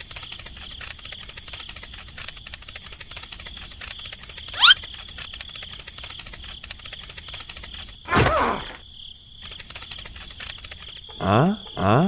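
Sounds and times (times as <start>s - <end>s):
crickets chirping: 0.0s - 12.0s
cartoon falling pitch effect: 4.6s - 4.8s.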